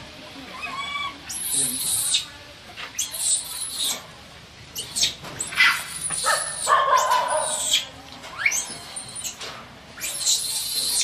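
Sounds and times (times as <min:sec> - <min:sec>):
baby monkey screaming: 0:00.5 - 0:02.3, 0:02.9 - 0:04.0, 0:04.8 - 0:09.4, 0:10.0 - 0:11.0.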